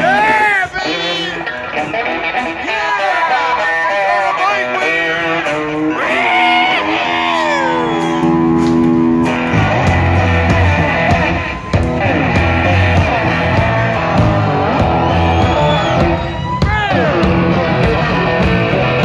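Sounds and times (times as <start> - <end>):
electric guitar lead: 0.0 - 19.0
drum kit: 4.8 - 19.0
heavy low bass: 6.8 - 19.0.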